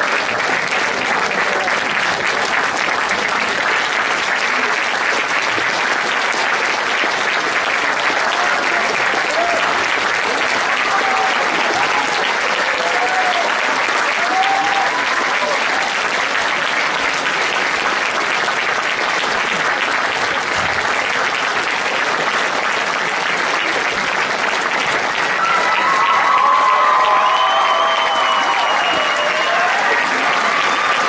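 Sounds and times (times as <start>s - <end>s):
audience applauding: 0.0s - 31.0s
crowd calling out: 8.1s - 16.0s, 25.3s - 31.0s
whistles and cheers: 10.9s - 15.6s, 25.4s - 31.0s.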